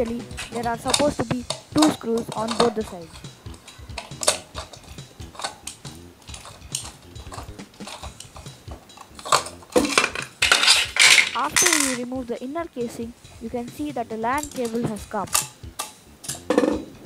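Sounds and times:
plastic cover clicking and rattling: 0.4 - 4.8, 5.4 - 12.0.

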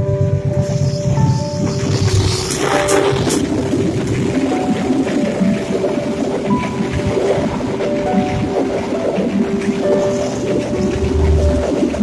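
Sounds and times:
diesel locomotive rumble: 0.0 - 12.0
piano music: 0.0 - 12.0
hiss: 0.6 - 3.4.

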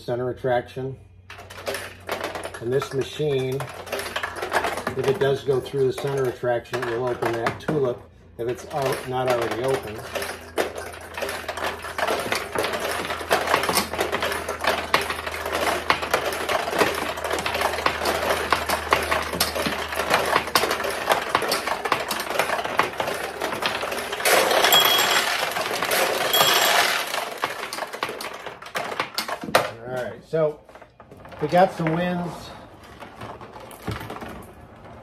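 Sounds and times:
steel balls clattering through pins: 1.2 - 35.0
high ringing tone: 24.5 - 27.2.

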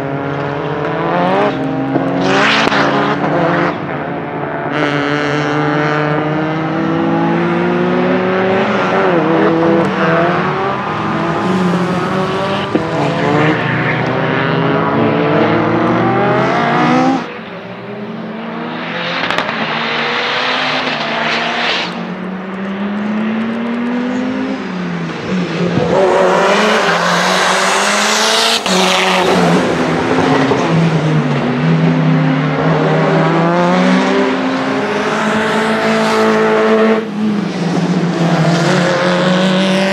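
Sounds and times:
car engine revving: 0.0 - 39.9.

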